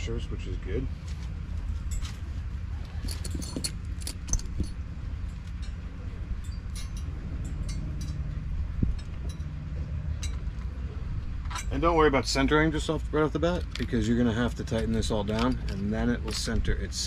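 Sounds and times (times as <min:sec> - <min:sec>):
wind rumble on microphone: 0:01.3 - 0:12.1
metal bolts and nuts clinking: 0:01.7 - 0:10.7, 0:11.4 - 0:12.0, 0:13.4 - 0:16.9.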